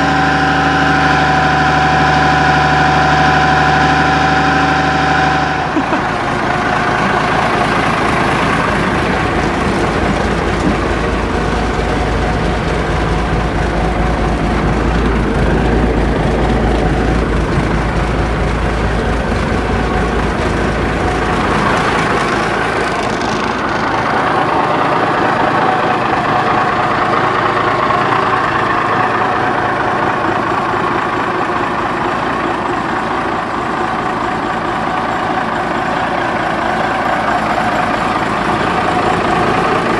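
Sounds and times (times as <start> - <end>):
diesel truck engine idling: 0.0 - 39.9.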